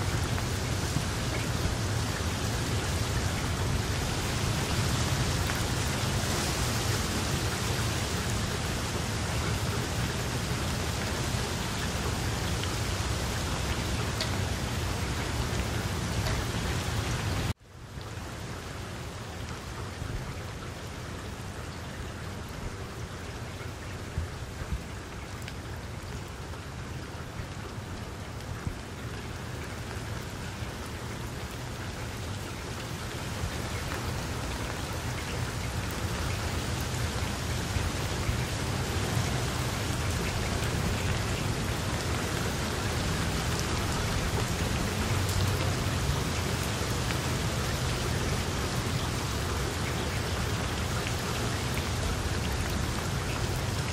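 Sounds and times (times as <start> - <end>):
rain falling on water: 0.0 - 53.9.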